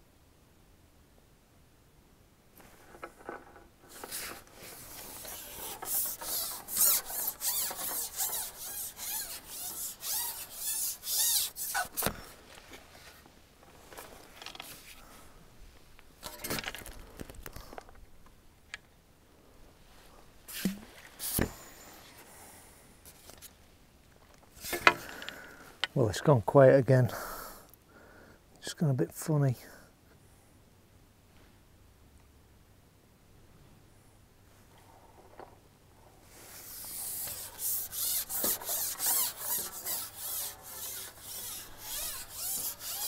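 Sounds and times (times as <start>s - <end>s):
fishing pole sliding and squeaking: 2.6s - 13.2s, 20.5s - 22.2s, 24.5s - 25.5s, 36.3s - 43.0s.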